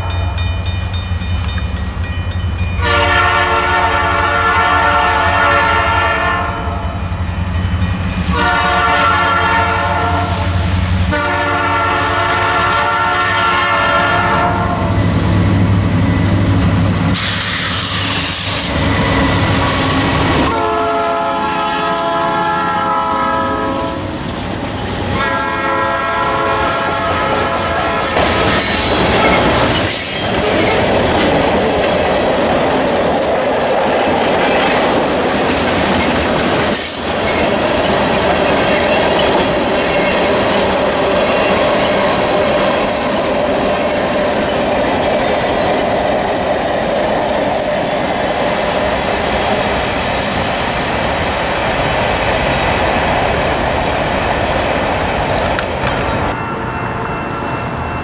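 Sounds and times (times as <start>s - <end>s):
locomotive air horn blasts: 2.8s - 6.7s, 8.3s - 10.5s, 11.1s - 14.9s, 20.4s - 24.1s, 25.2s - 29.1s
train wheels clattering: 26.2s - 56.4s.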